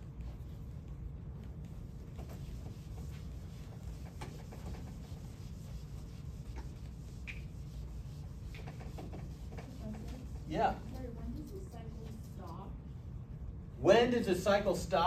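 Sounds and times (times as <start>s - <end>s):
steady low hum: 0.0s - 15.0s
faint taps and rubs: 1.4s - 12.6s.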